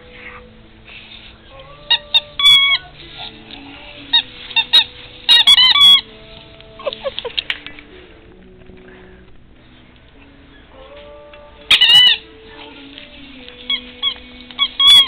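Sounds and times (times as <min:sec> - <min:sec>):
faint background music: 0:00.0 - 0:15.0
squeaky dog toy squeaking: 0:01.8 - 0:03.0, 0:04.1 - 0:06.1, 0:11.7 - 0:12.3, 0:13.6 - 0:15.0.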